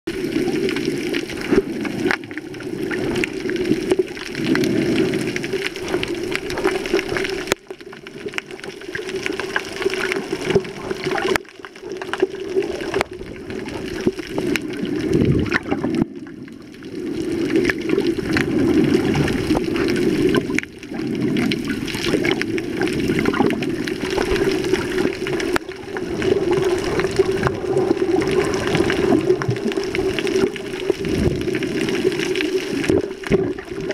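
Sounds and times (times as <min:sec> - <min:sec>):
crackling clicks: 0:00.1 - 0:33.9
underwater rush of water: 0:00.1 - 0:33.9.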